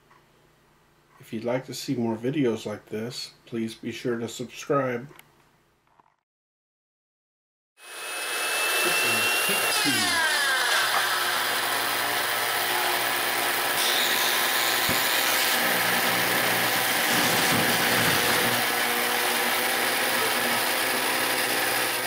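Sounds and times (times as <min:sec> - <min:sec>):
vacuum cleaner motor rushing: 0:07.8 - 0:22.0.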